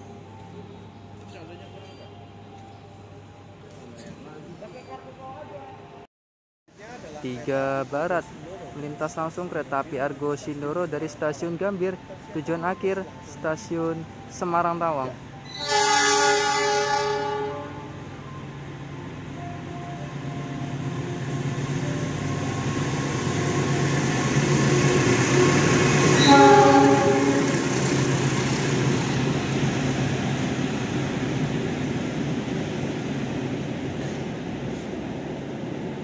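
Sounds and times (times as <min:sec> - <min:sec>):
train passing: 0:06.7 - 0:36.0
train horn: 0:15.6 - 0:18.0, 0:25.2 - 0:27.7.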